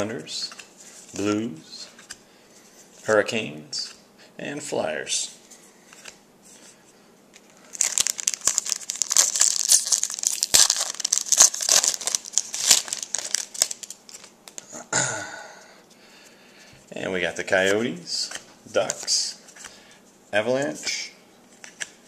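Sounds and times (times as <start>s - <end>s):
foil wrapper crinkling: 7.6s - 14.6s.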